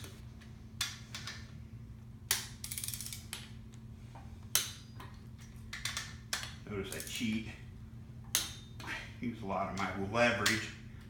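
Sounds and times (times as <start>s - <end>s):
ratchet clicking: 2.3s - 3.4s.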